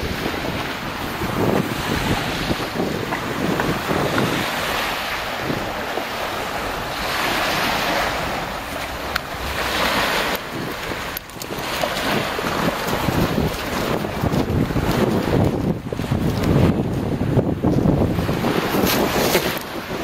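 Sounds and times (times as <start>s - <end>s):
small waves breaking on gravel: 0.0s - 16.7s
wind buffeting microphone: 0.0s - 20.0s.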